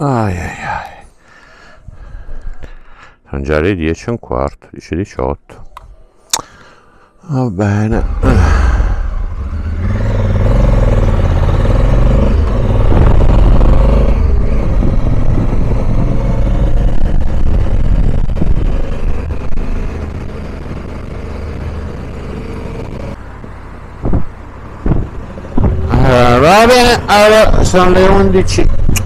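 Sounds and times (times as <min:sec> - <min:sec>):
motorcycle engine rumble: 0:07.8 - 0:29.0
wind noise: 0:12.2 - 0:21.8, 0:24.0 - 0:26.3.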